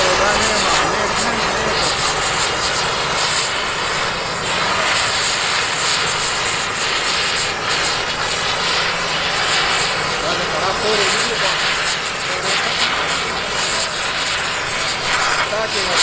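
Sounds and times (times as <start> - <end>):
gas torch flame hissing: 0.0 - 16.0.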